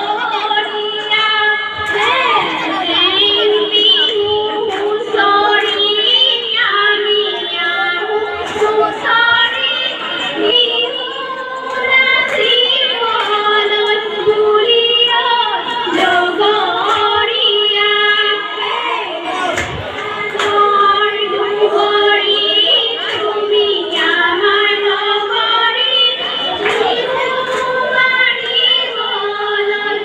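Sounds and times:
women singing together: 0.0 - 30.0.

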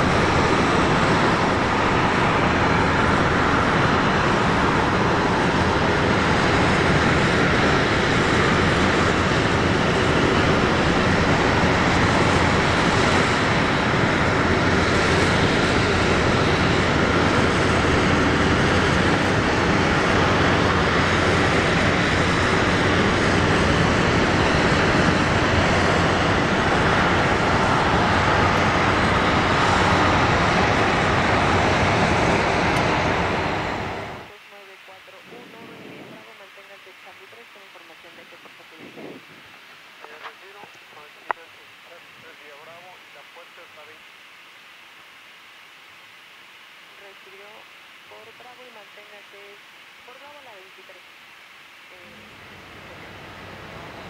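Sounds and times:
aircraft turbine noise: 0.0 - 44.3, 46.0 - 54.0
low hum: 51.7 - 54.0.

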